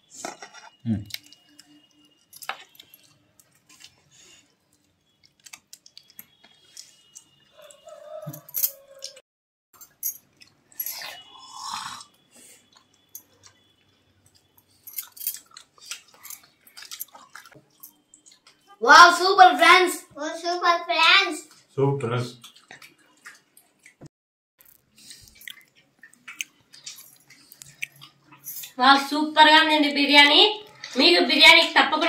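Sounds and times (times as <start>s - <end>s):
quiet chewing: 0.5s - 8.4s, 11.9s - 18.8s, 22.4s - 28.8s.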